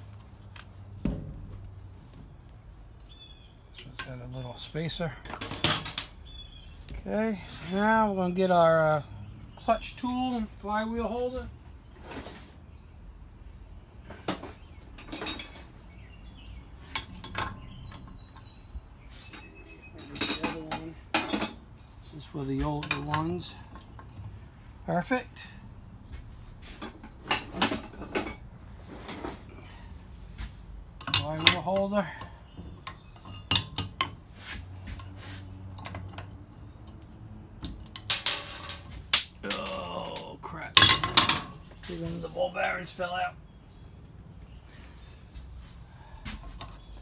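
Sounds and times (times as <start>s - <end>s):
metal tools clinking and knocking: 5.3s - 6.1s, 14.3s - 15.8s, 16.8s - 24.3s, 26.7s - 28.4s, 31.0s - 34.2s, 34.9s - 41.9s.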